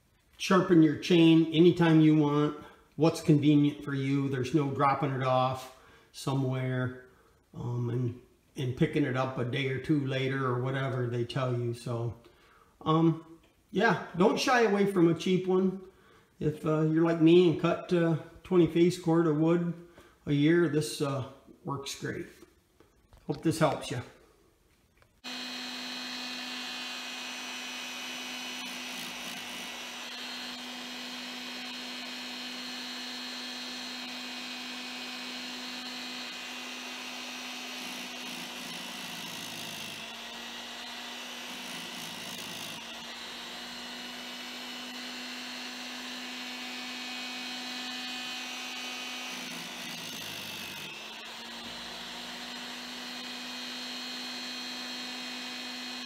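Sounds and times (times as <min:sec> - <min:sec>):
grinding wheel grinding chain tooth: 0:25.2 - 0:56.0
small motor running: 0:25.2 - 0:56.0.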